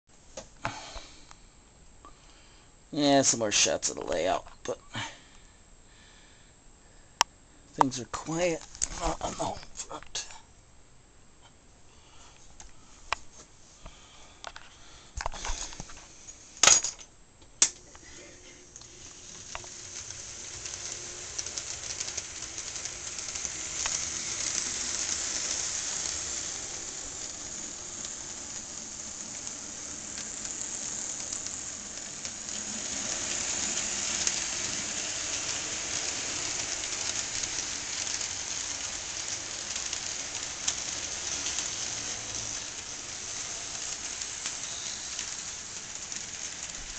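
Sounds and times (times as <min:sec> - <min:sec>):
model train clattering on rails: 0:18.7 - 0:46.9.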